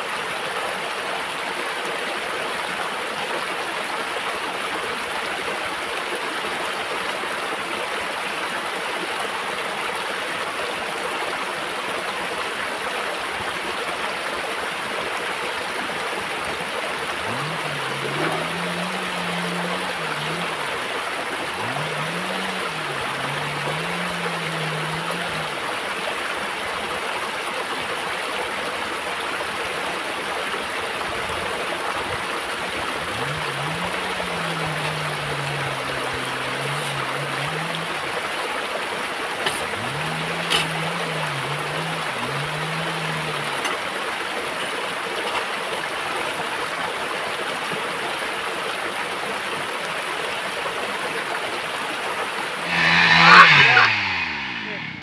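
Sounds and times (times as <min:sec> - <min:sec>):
stream running over rocks: 0:00.0 - 0:55.0
low hum: 0:17.0 - 0:26.1, 0:32.7 - 0:38.2, 0:39.6 - 0:43.7, 0:52.6 - 0:55.0.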